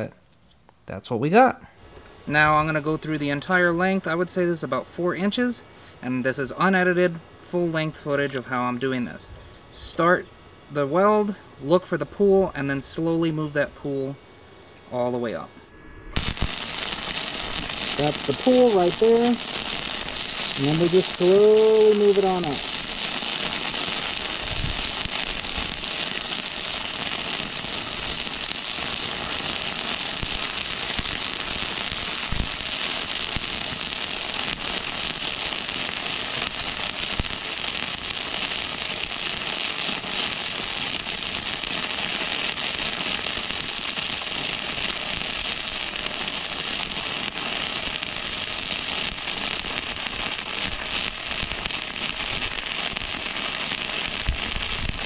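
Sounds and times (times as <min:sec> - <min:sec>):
welding arc crackling: 0:16.2 - 0:55.0.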